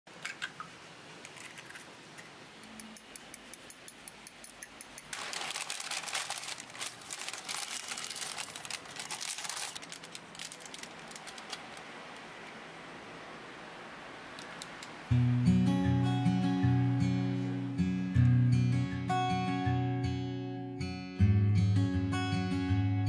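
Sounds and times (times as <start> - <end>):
baking paper crinkling: 5.0 - 12.2.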